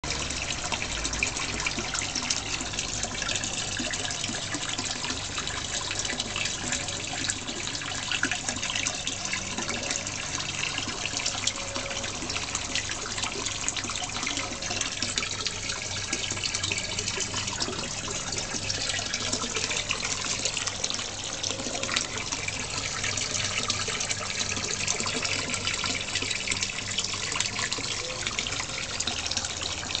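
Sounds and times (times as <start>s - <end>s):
pond water trickling: 0.0s - 30.0s.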